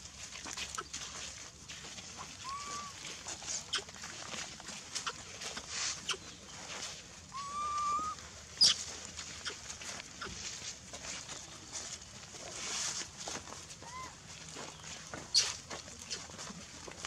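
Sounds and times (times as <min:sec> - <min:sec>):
rustles of dry leaves: 0:00.0 - 0:17.0
monkey cooing: 0:02.4 - 0:03.0, 0:07.3 - 0:08.8.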